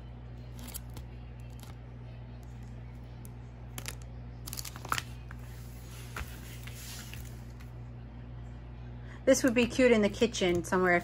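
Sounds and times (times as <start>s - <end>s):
plastic film crinkling: 3.8s - 5.5s.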